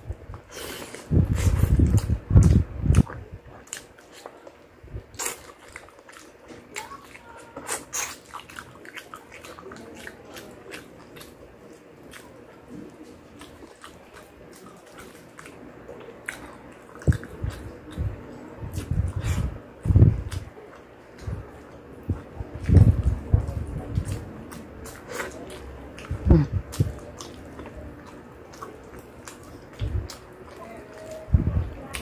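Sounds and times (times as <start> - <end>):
person biting and chewing: 5.1 - 18.0.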